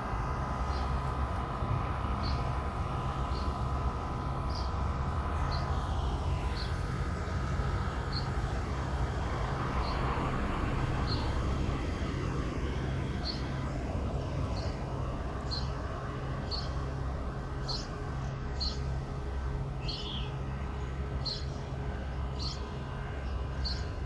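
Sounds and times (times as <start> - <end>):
steady low rumble: 0.0 - 24.0
bird chirping: 19.8 - 20.3.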